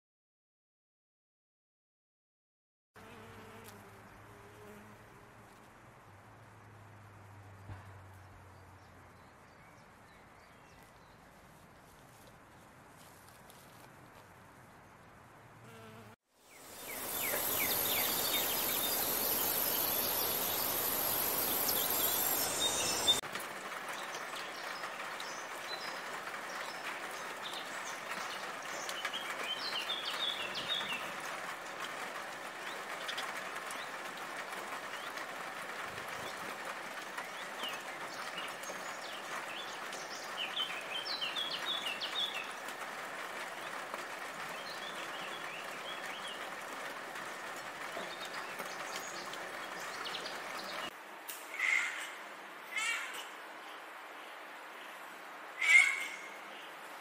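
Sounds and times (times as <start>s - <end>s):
falling rain: 16.4s - 57.0s
sparrow chirping: 16.8s - 23.2s.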